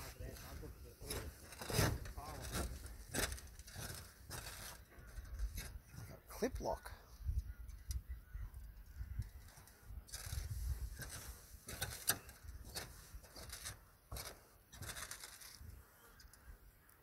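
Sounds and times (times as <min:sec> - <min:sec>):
footsteps on roofing: 0:00.0 - 0:06.1, 0:09.4 - 0:15.7.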